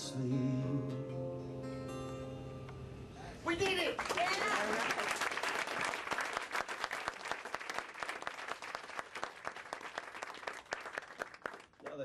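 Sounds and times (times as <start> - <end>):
audience applauding: 3.6 - 12.0.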